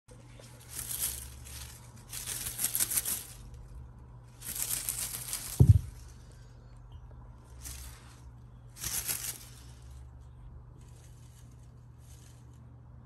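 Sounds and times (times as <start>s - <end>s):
crinkly rustling: 0.1s - 6.7s, 7.4s - 13.0s
dull thump: 5.5s - 6.0s.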